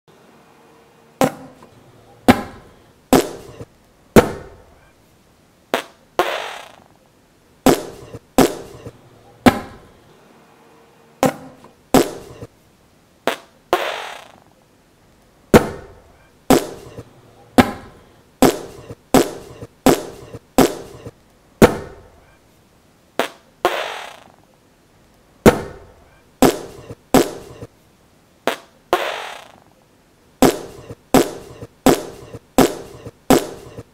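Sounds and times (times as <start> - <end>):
sharp bangs: 2.2 - 4.7, 7.7 - 9.9.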